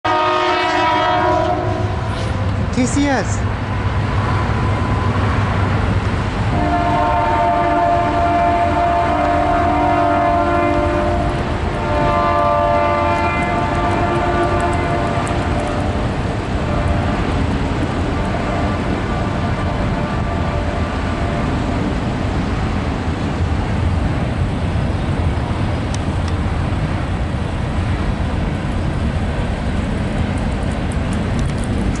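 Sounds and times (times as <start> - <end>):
locomotive air horn: 0.0 - 2.5, 6.5 - 16.0
freight train cars rolling past: 0.1 - 32.0.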